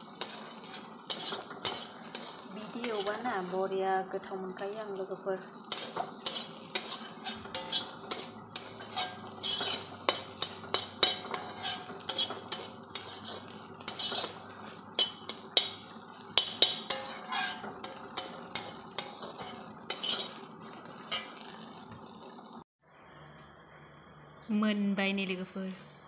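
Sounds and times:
metal spatula scraping a pan: 0:00.0 - 0:03.8, 0:05.5 - 0:21.7
frying sizzle: 0:00.0 - 0:22.7.

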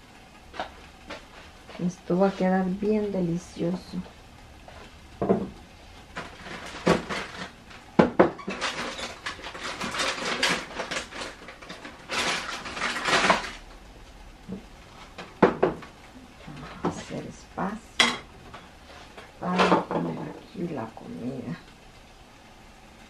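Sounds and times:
dishes and utensils clattering: 0:06.2 - 0:13.6, 0:18.0 - 0:20.4.

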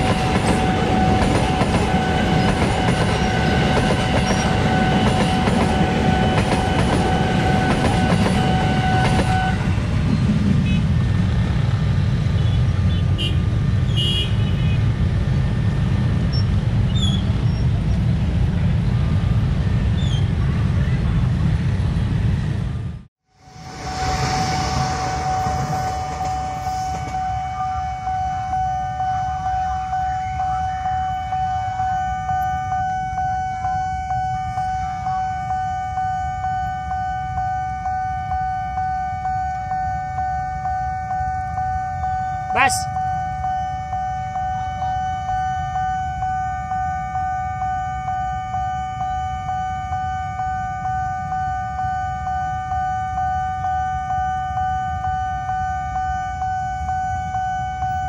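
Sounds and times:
level crossing alarm pulsing: 0:00.0 - 0:09.8, 0:23.4 - 0:58.0
electric train passing: 0:00.0 - 0:58.0
low rumble of traffic: 0:00.0 - 0:58.0.

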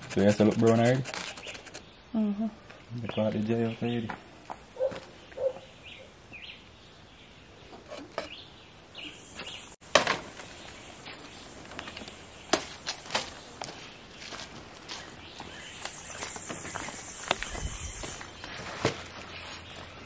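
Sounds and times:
rustling: 0:00.0 - 0:01.8, 0:16.2 - 0:20.0
bird chirps: 0:13.4 - 0:18.6.

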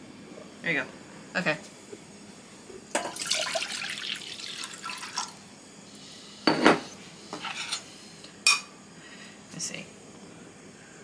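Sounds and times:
juice pouring and splashing: 0:03.1 - 0:05.5.

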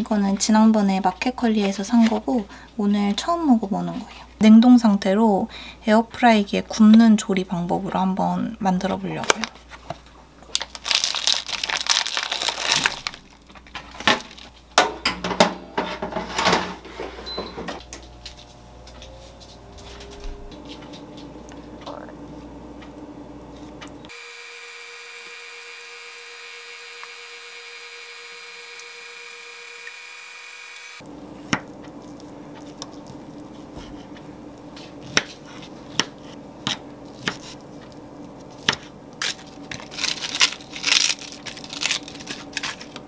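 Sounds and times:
steady hum: 0:02.1 - 0:43.0
plastic packaging crinkling: 0:10.4 - 0:14.6, 0:37.1 - 0:43.0.

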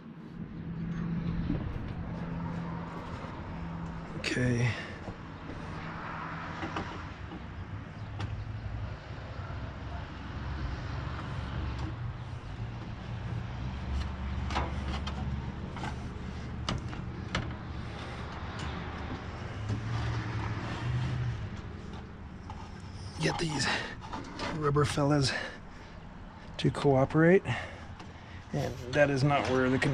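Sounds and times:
steady low rumble: 0:00.2 - 0:05.6
knocks and scrapes of parts handled: 0:06.4 - 0:07.6, 0:14.0 - 0:22.9.

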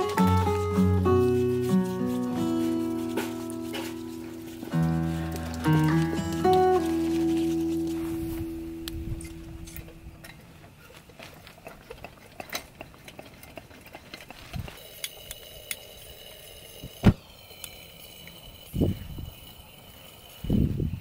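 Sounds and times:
lantern hissing whistle: 0:14.8 - 0:21.0.

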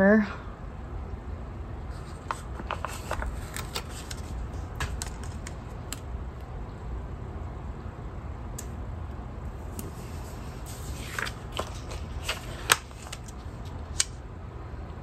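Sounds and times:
low background hum: 0:00.0 - 0:15.0
paper sticker peeling crackles: 0:02.0 - 0:06.1, 0:09.7 - 0:14.2.

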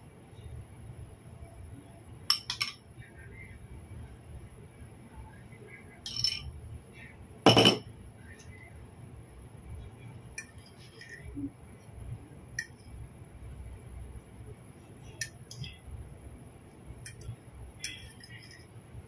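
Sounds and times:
cutlery clinking on ceramic dishes: 0:02.3 - 0:02.8, 0:07.5 - 0:07.8, 0:17.8 - 0:18.6.

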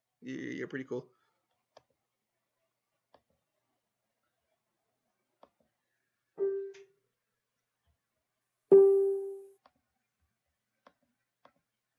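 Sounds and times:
piano-like notes: 0:06.4 - 0:06.9, 0:08.7 - 0:09.6.

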